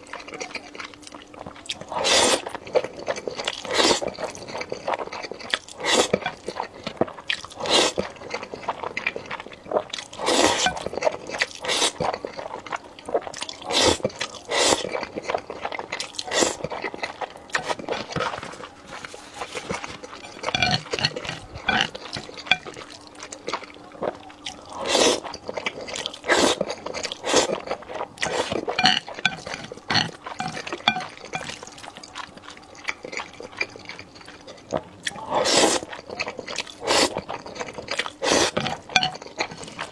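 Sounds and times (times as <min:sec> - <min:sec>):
chewing: 0:00.0 - 0:39.9
noodle slurping: 0:01.9 - 0:02.5, 0:05.8 - 0:06.4, 0:10.1 - 0:10.8, 0:13.6 - 0:14.9, 0:17.6 - 0:22.8, 0:24.8 - 0:25.2, 0:25.9 - 0:31.8, 0:35.3 - 0:36.0, 0:36.8 - 0:39.9.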